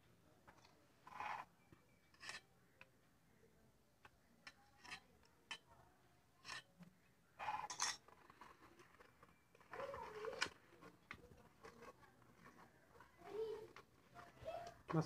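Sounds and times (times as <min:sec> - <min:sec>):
knife scraping steel bowl: 0:01.1 - 0:02.5.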